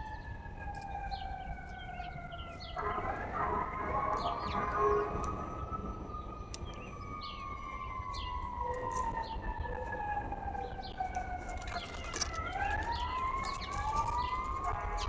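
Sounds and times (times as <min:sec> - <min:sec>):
siren wailing: 0:00.0 - 0:15.0
bird chirps: 0:00.8 - 0:03.3, 0:04.1 - 0:08.5, 0:11.7 - 0:15.0.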